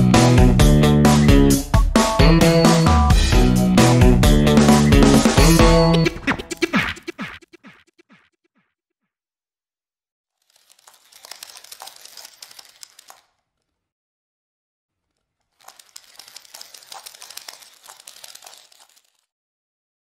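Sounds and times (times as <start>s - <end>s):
crackling crinkling rustle: 10.3s - 13.9s, 14.9s - 19.3s.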